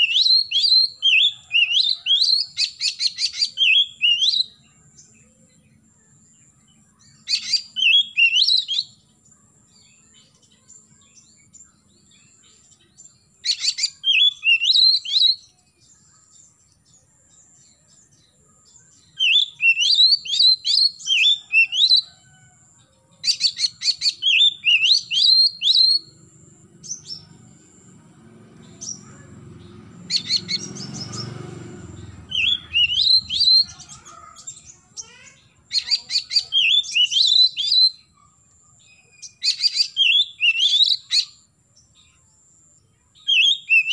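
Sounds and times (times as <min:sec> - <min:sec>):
bird singing whistled phrases: 0:00.0 - 0:04.6, 0:07.2 - 0:09.0, 0:13.4 - 0:15.6, 0:18.9 - 0:22.1, 0:23.3 - 0:26.1, 0:32.2 - 0:38.2, 0:38.8 - 0:41.5, 0:43.2 - 0:43.9.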